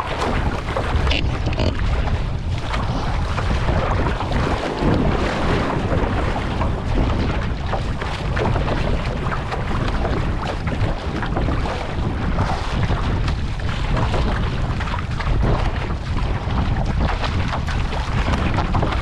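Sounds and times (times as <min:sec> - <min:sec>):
paddle splashes: 0:00.0 - 0:19.0
water rushing and splashing: 0:00.0 - 0:19.0
wind buffeting microphone: 0:00.0 - 0:19.0.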